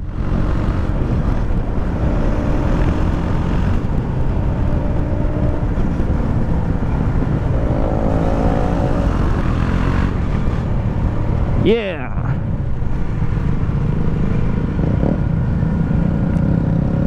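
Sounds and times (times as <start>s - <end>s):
wind on microphone: 0.0s - 11.6s.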